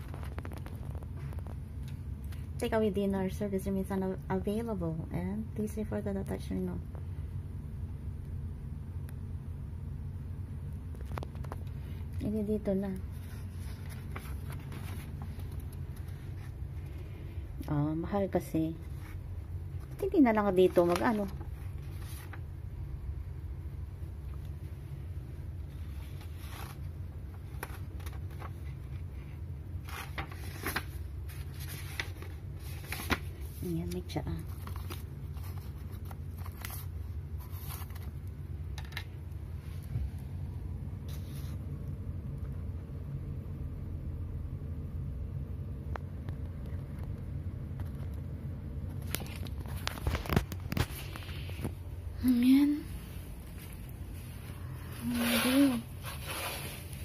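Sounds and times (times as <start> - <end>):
paper pages rustling: 0.0 - 2.5, 10.9 - 12.2, 12.8 - 17.4, 18.7 - 22.6, 25.6 - 39.9, 41.0 - 41.7, 48.8 - 51.9, 53.4 - 57.0
steady low hum: 0.0 - 57.0
steady low rumble: 0.0 - 57.0.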